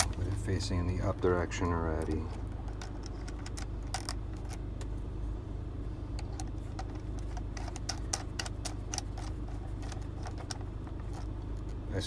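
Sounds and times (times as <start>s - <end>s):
low hum: 0.0s - 12.0s
nut clicking on terminal: 1.4s - 4.9s, 6.1s - 11.8s.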